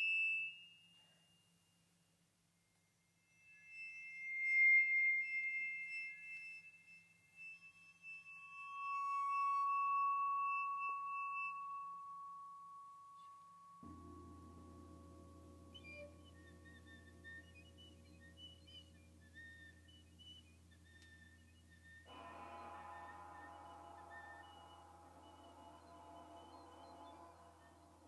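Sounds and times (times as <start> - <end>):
piccolo high held tones: 3.2 - 28.0
low layered held sound: 8.0 - 28.0.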